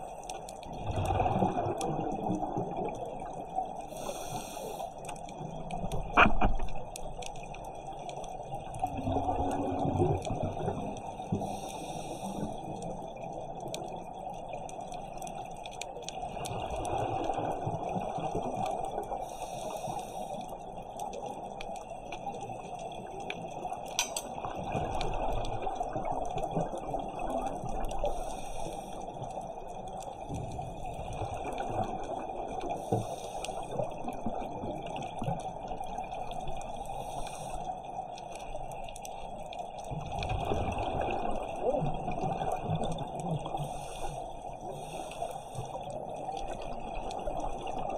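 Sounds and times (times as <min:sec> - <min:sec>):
divers' exhaled bubbles: 0:00.7 - 0:04.4, 0:05.4 - 0:47.9
underwater hiss: 0:03.9 - 0:05.1, 0:11.3 - 0:12.8, 0:19.1 - 0:20.6, 0:28.0 - 0:29.2, 0:32.6 - 0:33.9, 0:36.7 - 0:38.0, 0:43.4 - 0:46.6.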